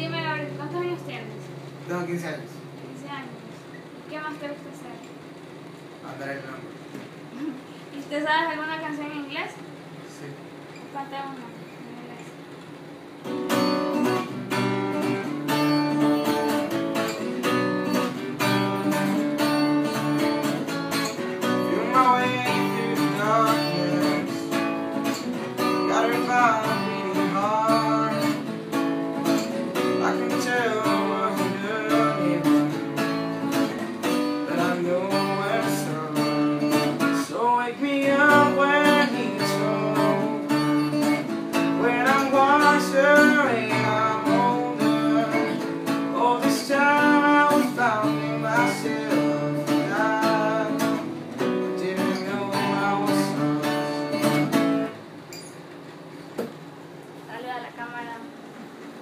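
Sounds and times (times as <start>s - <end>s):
acoustic guitar strumming chords: 0.0s - 4.9s, 13.0s - 55.7s
young man singing: 21.4s - 24.6s, 25.8s - 28.5s, 29.7s - 33.0s, 34.4s - 54.5s.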